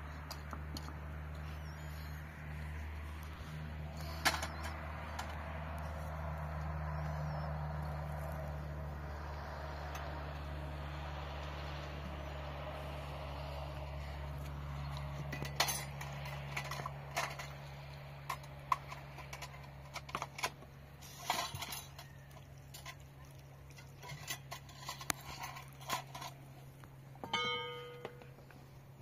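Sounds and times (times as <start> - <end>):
low hum: 0.0 - 29.0
metal cookware clinking: 27.2 - 28.2
ringing metallic clang: 27.2 - 28.4.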